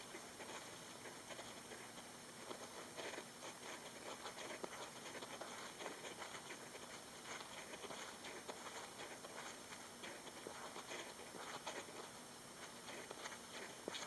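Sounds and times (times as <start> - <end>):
hamster digging in sand: 0.0 - 14.0.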